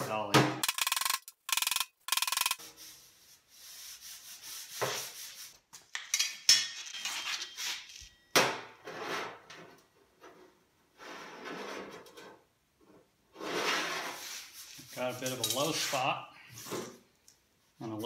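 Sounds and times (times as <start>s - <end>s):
scraping across metal: 8.8s - 12.4s.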